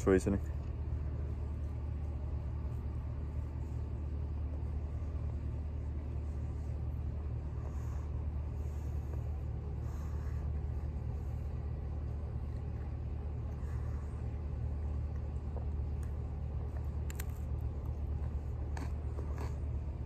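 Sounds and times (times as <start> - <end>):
low rumble: 0.0 - 20.0
chewing pizza crunches: 14.9 - 20.0.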